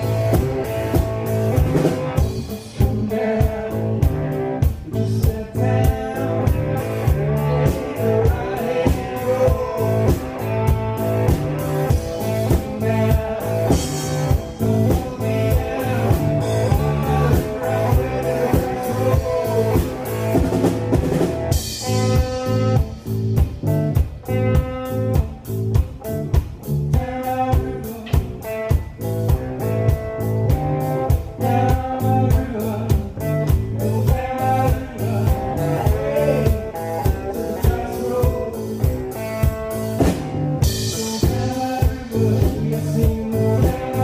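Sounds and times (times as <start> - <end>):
cigar box guitar: 0.0 - 44.0
drum kit beat: 0.0 - 44.0
electric guitar: 0.0 - 44.0.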